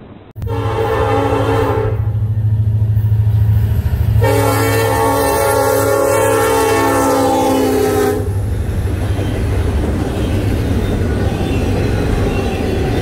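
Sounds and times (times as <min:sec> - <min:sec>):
train cars rolling on rails: 0:00.0 - 0:13.0
locomotive horn chord: 0:00.4 - 0:02.4, 0:04.1 - 0:08.4.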